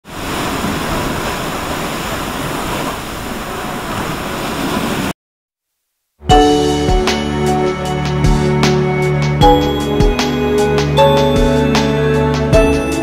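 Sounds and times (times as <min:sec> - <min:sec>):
ocean surf washing up: 0:00.0 - 0:05.2
music: 0:06.2 - 0:13.0.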